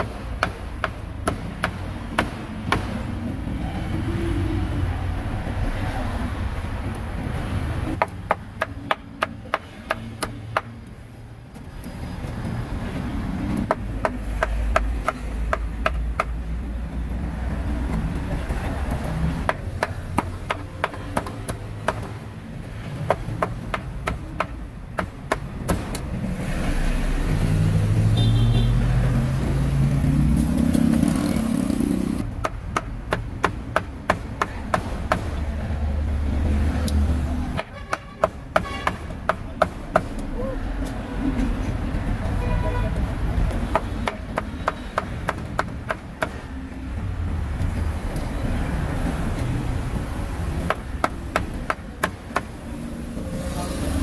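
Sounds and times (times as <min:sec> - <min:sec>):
street traffic: 0:00.0 - 0:54.0
passing vehicle engine: 0:25.5 - 0:32.4, 0:34.9 - 0:37.6, 0:46.3 - 0:54.0.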